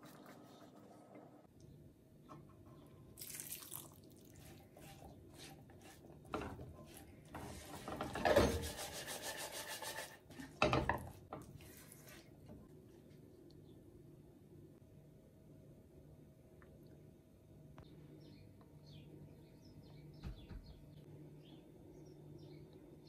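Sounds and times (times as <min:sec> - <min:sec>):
spatula scraping frying pan: 0:04.4 - 0:11.6.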